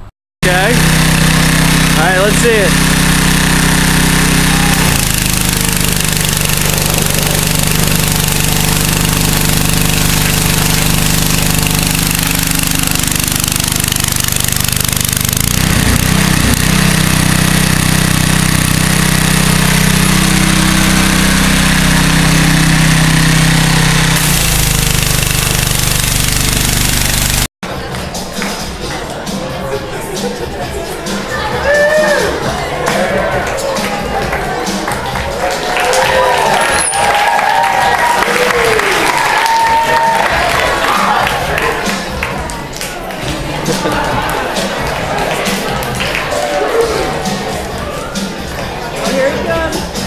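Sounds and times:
pressure washer humming: 0.4 - 27.5.

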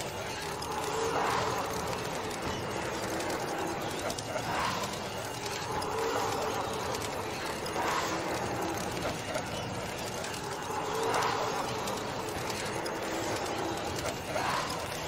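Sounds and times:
dark noise bed: 0.0 - 15.0
moaning surge: 0.0 - 15.0.

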